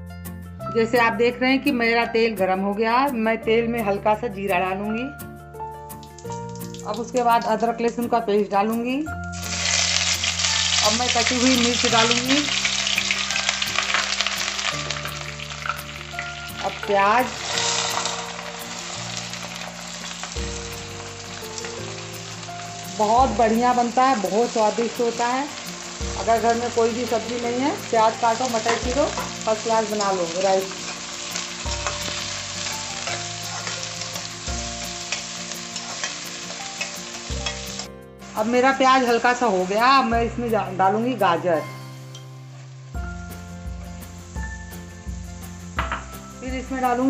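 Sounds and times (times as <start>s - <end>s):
hot oil sizzling: 5.6s - 8.0s, 9.2s - 47.0s
spatula scraping a pan: 17.4s - 20.2s.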